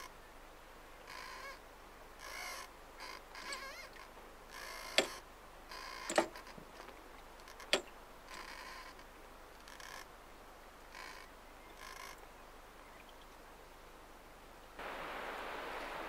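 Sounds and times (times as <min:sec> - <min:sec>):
rigging and wooden yard creaking: 0:02.2 - 0:10.2, 0:11.0 - 0:12.2
sharp knocks: 0:05.0 - 0:05.2, 0:06.1 - 0:06.4.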